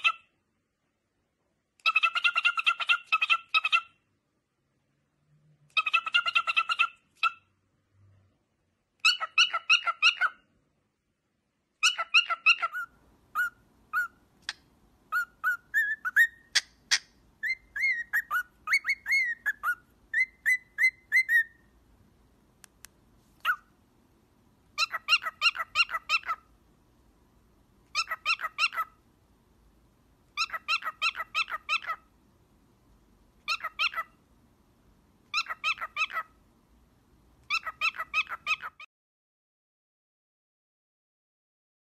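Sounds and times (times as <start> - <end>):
cockatiel whistling: 11.8 - 14.2, 15.1 - 21.7.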